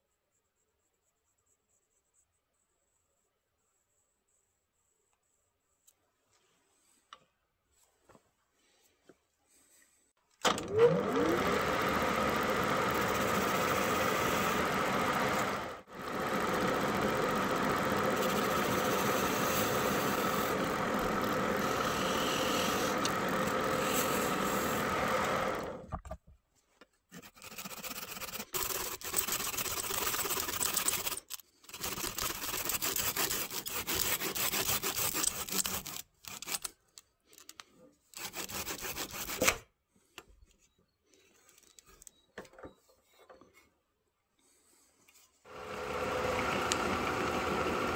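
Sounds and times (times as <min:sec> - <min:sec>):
wood lathe motor humming: 0:10.5 - 0:25.9, 0:45.5 - 0:47.9
handsaw cutting wood: 0:11.2 - 0:25.8, 0:27.2 - 0:36.7, 0:38.2 - 0:39.6.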